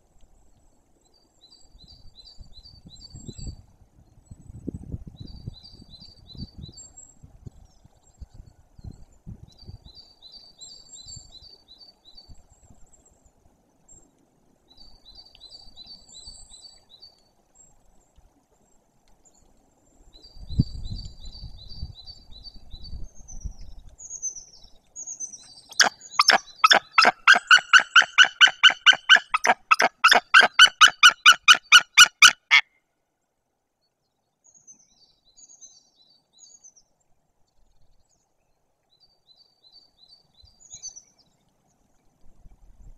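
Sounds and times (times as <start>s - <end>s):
songbird high trill: 25.3s - 32.6s
eagle giving loud calls: 25.7s - 32.6s.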